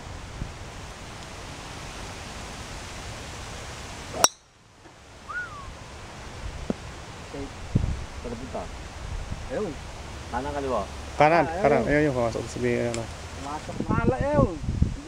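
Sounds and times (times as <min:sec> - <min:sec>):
background hiss: 0:00.0 - 0:15.0
golf club striking ball: 0:04.2 - 0:04.5.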